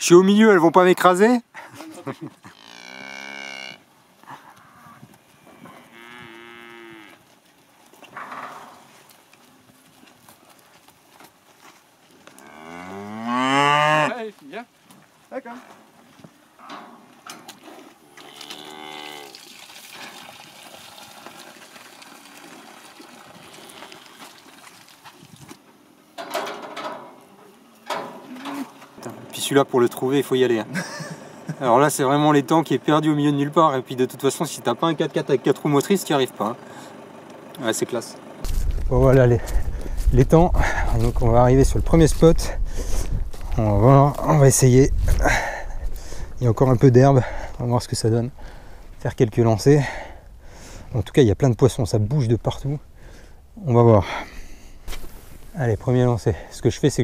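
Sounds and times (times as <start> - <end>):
cow mooing: 2.5 - 3.9, 4.5 - 7.2, 12.3 - 14.2, 18.1 - 19.4, 23.4 - 24.1
steady rustle: 54.4 - 57.0.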